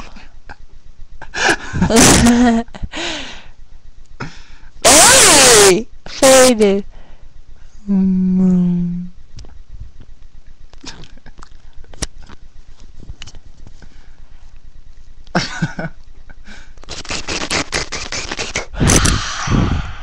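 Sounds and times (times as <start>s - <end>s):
microphone handling rubbing and clicks: 9.3s - 15.2s, 16.8s - 19.9s.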